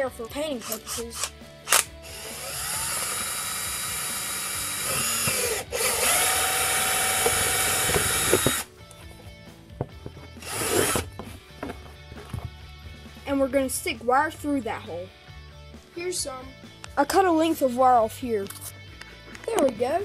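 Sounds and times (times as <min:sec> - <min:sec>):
cordless drill whining: 0:01.7 - 0:08.7, 0:10.4 - 0:11.1.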